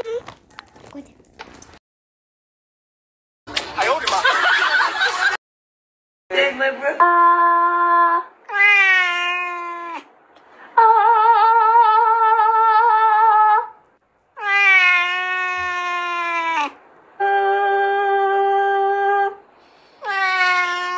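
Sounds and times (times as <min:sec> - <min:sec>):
cat meowing: 0:08.5 - 0:10.1, 0:14.4 - 0:16.8, 0:20.0 - 0:20.9.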